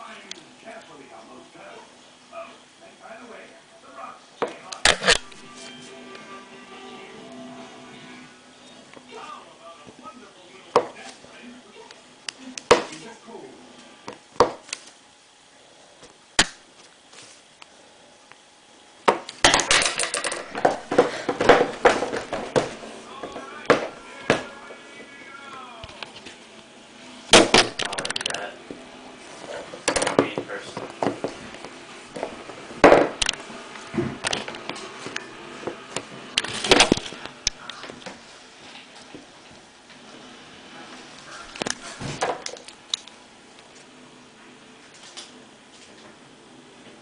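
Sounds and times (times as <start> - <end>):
knocks on wooden tabletop: 32.8 - 33.2.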